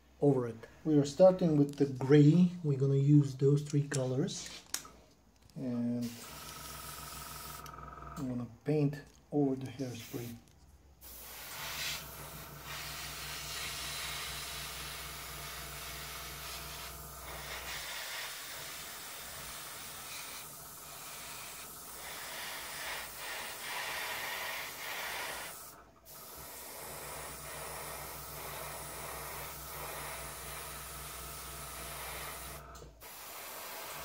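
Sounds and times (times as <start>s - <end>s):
airbrush hissing: 5.6s - 7.7s, 9.8s - 10.4s, 11.0s - 34.0s
compressor humming: 5.9s - 8.9s, 11.0s - 34.0s.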